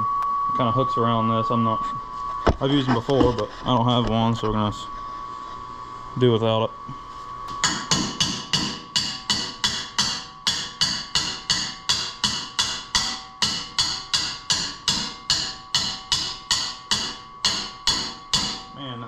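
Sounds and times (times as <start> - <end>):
hammer striking metal: 7.6 - 18.8.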